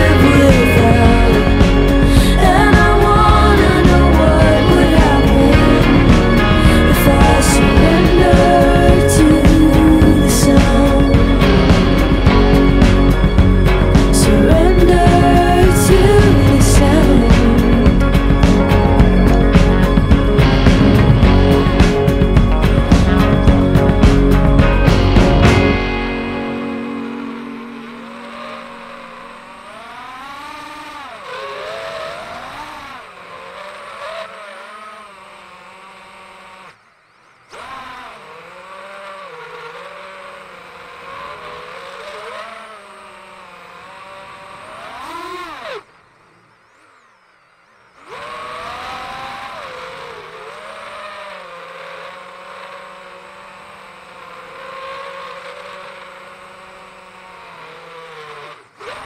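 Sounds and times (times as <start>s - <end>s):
quadcopter propellers whining: 0.0s - 59.0s.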